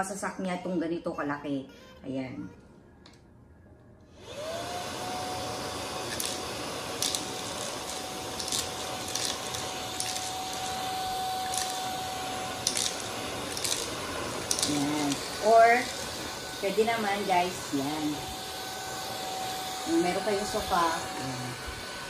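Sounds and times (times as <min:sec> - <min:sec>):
handheld vacuum motor whine: 0:04.1 - 0:22.0
cereal clicking in vacuum nozzle: 0:06.0 - 0:16.2.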